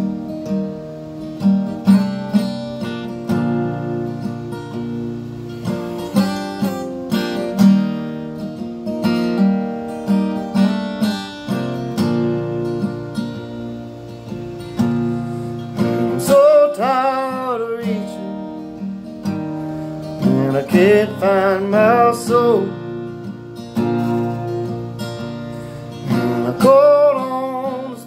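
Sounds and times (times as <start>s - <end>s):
guitar strumming chords: 0.0s - 28.0s
man singing: 15.8s - 18.6s, 20.2s - 23.0s, 25.9s - 28.0s.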